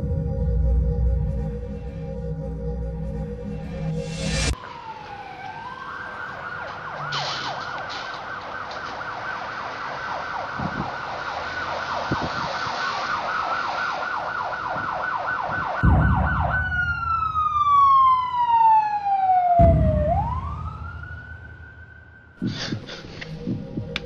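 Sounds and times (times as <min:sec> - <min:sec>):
music: 0:00.0 - 0:04.6, 0:15.8 - 0:17.7, 0:19.6 - 0:21.4, 0:22.4 - 0:24.0
emergency vehicle siren: 0:00.0 - 0:24.0.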